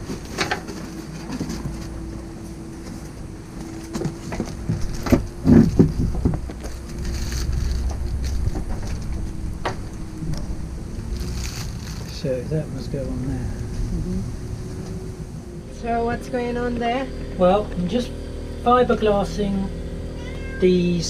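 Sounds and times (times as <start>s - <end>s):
cardboard rustling: 0.0s - 9.4s
steady low hum: 0.0s - 21.0s
wind rumbling on microphone: 4.4s - 15.7s.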